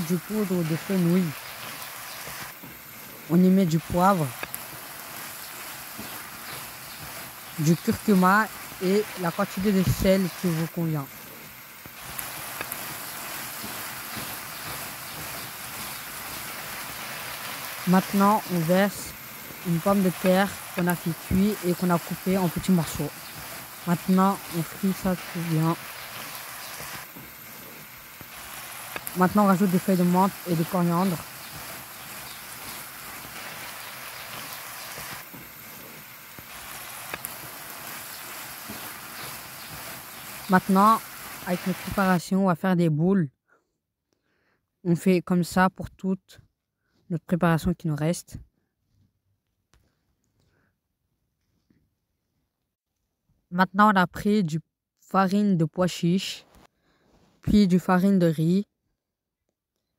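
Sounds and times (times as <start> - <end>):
food sizzling in a pan: 0.0 - 42.3.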